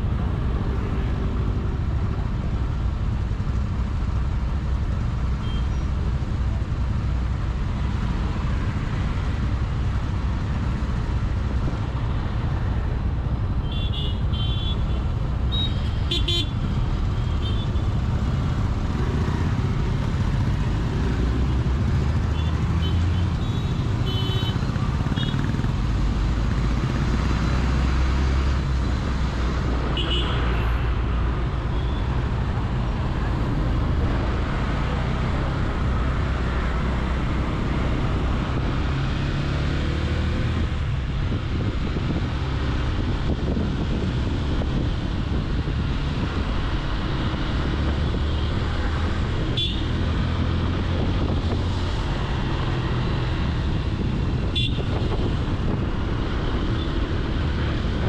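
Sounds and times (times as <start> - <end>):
engines and road noise rumble: 0.0 - 58.0
vehicle horn toots: 54.6 - 54.9.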